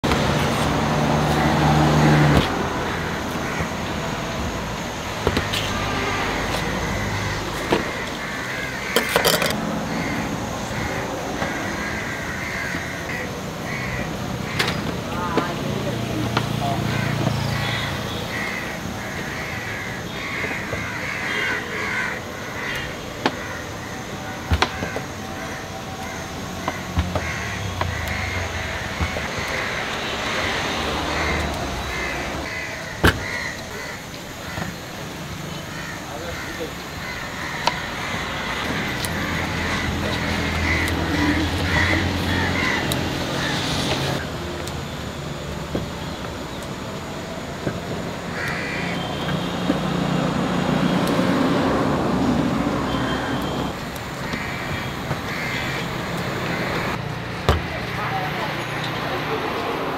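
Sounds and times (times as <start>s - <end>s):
traffic hum: 0.0s - 59.9s
crows cawing: 0.8s - 44.2s, 48.3s - 49.4s, 54.1s - 57.0s.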